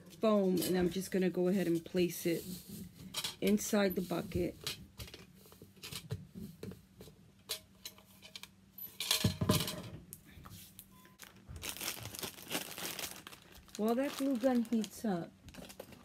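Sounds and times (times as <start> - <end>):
plastic bag rustling: 10.6 - 16.0.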